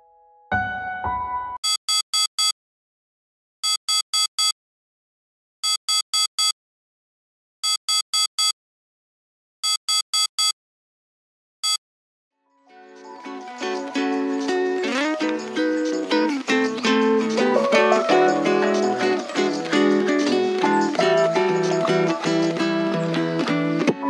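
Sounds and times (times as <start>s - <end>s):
phone alarm beeping: 1.6s - 2.5s, 3.6s - 4.5s, 5.6s - 6.5s, 7.6s - 8.5s, 9.6s - 10.5s.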